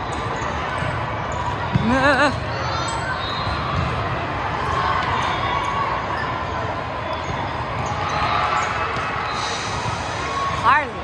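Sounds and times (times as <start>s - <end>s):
volleyballs bouncing and being hit: 0.0s - 9.2s
murmur of many voices: 0.0s - 11.0s.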